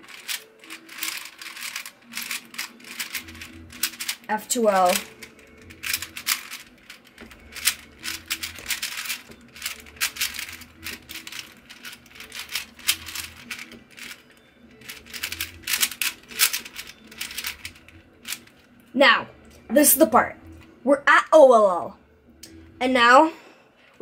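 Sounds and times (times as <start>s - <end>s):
puzzle cube layers clacking: 0.0s - 18.6s.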